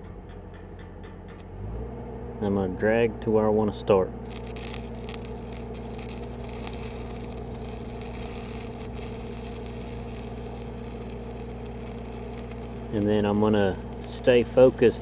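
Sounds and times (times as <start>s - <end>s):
welding arc crackling: 4.2s - 15.0s
welding machine engine drone: 4.2s - 15.0s.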